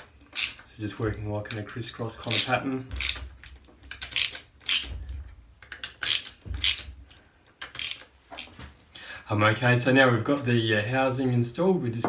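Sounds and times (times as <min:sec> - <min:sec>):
ratchet wrench clicking: 0:00.3 - 0:00.6, 0:02.3 - 0:03.2, 0:03.9 - 0:04.9, 0:05.6 - 0:06.8, 0:07.6 - 0:08.5.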